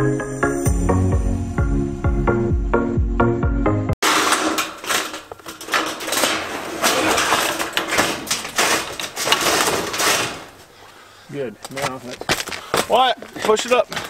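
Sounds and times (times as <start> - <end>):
metal roofing sheets scraping and clattering: 4.0 - 10.9, 11.7 - 14.0.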